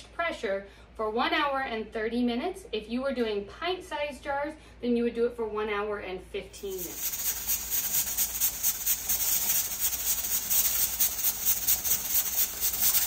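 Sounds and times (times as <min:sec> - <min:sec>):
steam hissing: 0:06.6 - 0:13.0.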